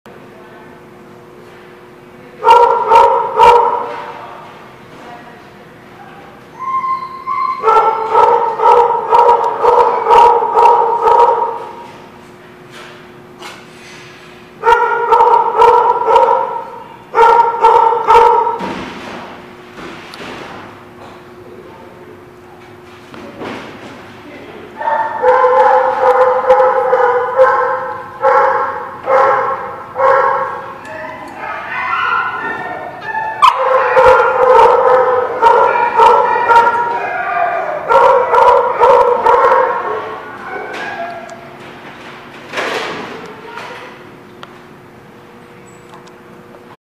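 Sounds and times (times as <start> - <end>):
dog whining: 6.5 - 10.4, 30.1 - 41.5
dog howl-like cries: 6.6 - 11.5, 31.0 - 41.5.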